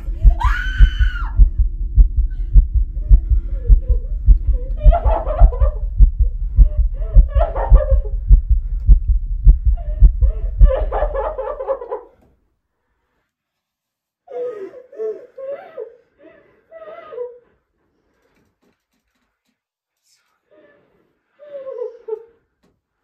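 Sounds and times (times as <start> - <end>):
low drone: 0.0 - 11.5
fast heavy heartbeat: 0.0 - 11.6.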